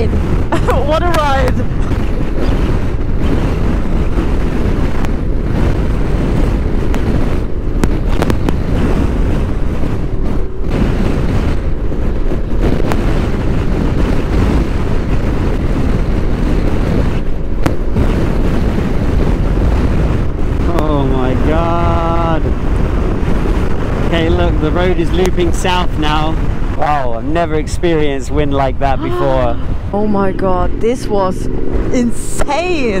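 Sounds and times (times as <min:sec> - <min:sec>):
motorcycle engine: 0:00.0 - 0:33.0
road noise: 0:00.0 - 0:33.0
wind rushing on microphone: 0:00.0 - 0:33.0.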